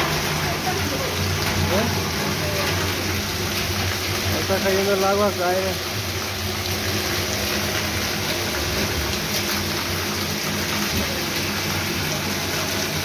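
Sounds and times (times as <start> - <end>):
heavy rain on pavement and awning: 0.0 - 13.0.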